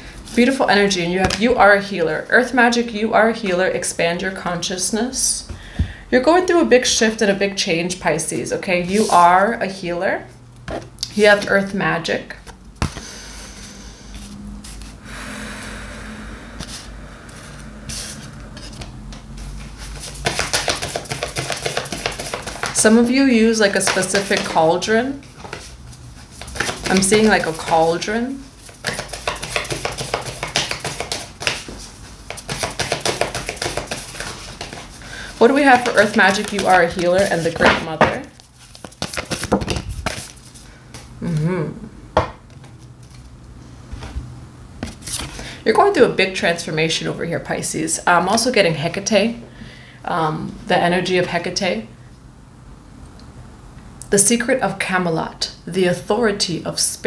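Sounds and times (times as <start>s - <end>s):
cards being shuffled: 18.6s - 22.8s, 23.7s - 24.6s, 25.2s - 28.0s, 28.6s - 41.0s.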